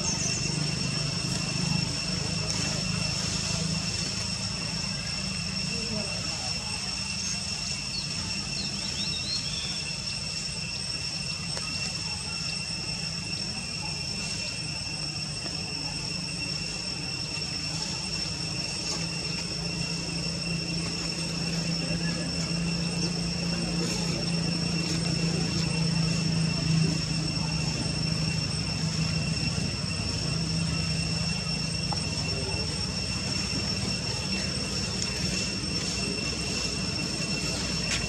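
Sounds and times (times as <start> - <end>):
high-pitched whining tones: 0.0 - 38.0
faint bird chirps: 7.1 - 10.4.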